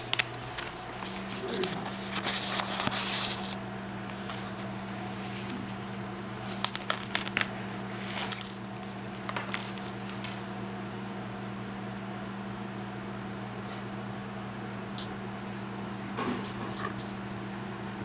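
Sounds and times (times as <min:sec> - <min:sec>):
paper crinkles and taps: 0:00.0 - 0:04.7, 0:06.5 - 0:10.4
paper pages rustling: 0:00.0 - 0:10.4.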